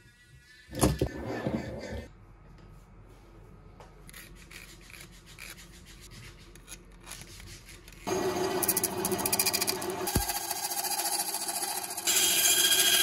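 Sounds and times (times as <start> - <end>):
wood being filed or sawn: 7.2 - 13.0.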